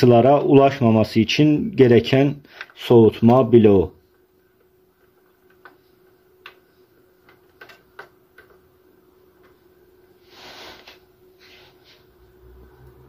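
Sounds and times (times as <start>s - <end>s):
clicks and taps on computer parts: 4.6s - 8.7s.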